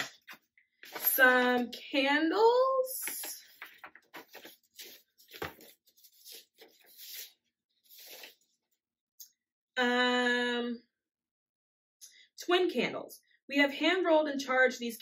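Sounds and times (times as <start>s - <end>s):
stiff paper rustling: 0.0s - 1.2s, 3.0s - 8.5s.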